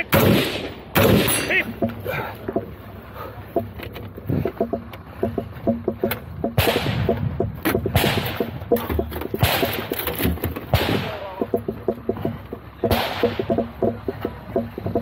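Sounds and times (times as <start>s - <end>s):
gunshots echoing: 0.0s - 1.7s, 6.6s - 7.2s, 7.9s - 8.6s, 9.4s - 10.0s, 10.6s - 11.4s, 12.9s - 13.6s
rapid light ticking: 1.5s - 15.0s.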